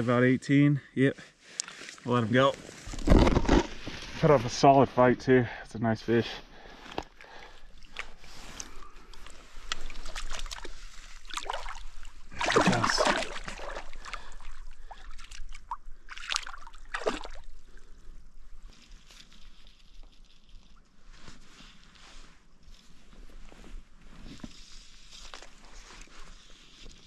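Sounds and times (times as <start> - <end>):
river water splashing: 7.6 - 17.8.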